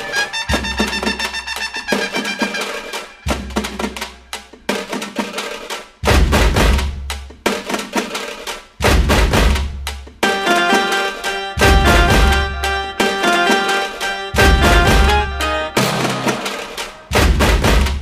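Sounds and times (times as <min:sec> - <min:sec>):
heavy bass drum hits: 0:08.8 - 0:09.7, 0:17.1 - 0:18.0
upbeat dance music: 0:10.3 - 0:17.1.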